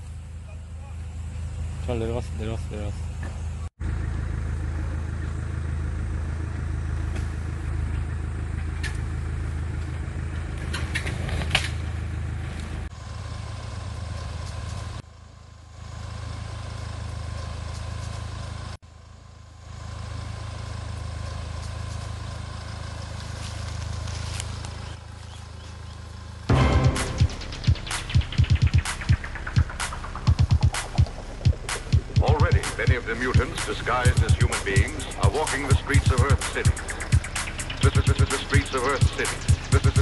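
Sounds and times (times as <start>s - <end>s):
suv engine running low: 0.0s - 40.0s.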